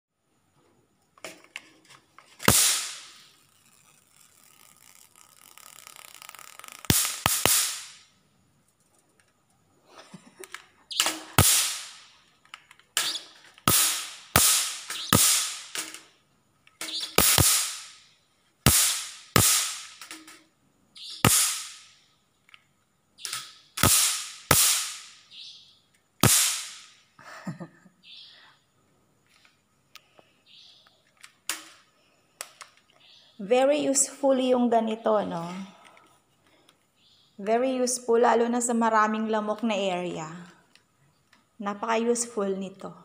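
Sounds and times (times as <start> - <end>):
electric mosquito racket zapping: 2.3 - 8.1, 10.9 - 12.2, 12.9 - 16.1, 16.8 - 20.4, 21.0 - 22.0, 23.2 - 25.4, 26.2 - 27.0.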